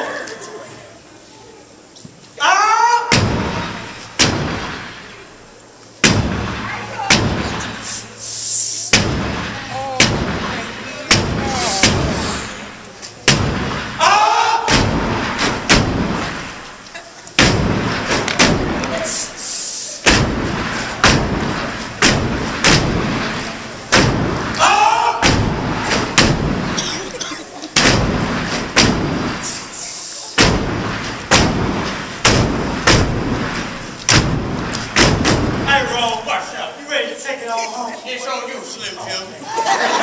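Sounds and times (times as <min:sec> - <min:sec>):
person shouting: 0:02.4 - 0:03.1, 0:11.4 - 0:12.0, 0:14.0 - 0:14.7, 0:24.6 - 0:25.2
stomps in unison: 0:14.7 - 0:16.6, 0:17.4 - 0:19.0, 0:20.1 - 0:27.2, 0:27.8 - 0:29.5, 0:30.4 - 0:35.7
stomping and clapping: 0:14.7 - 0:19.1, 0:30.4 - 0:35.7.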